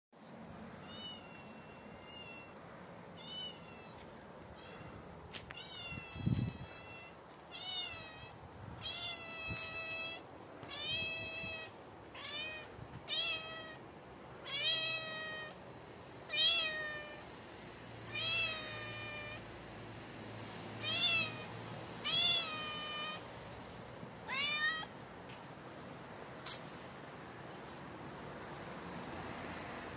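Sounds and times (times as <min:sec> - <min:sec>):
cat meowing: 0:00.8 - 0:02.6, 0:03.2 - 0:13.8, 0:14.4 - 0:15.6, 0:16.3 - 0:17.2, 0:18.1 - 0:19.4, 0:20.8 - 0:23.2, 0:24.2 - 0:24.9.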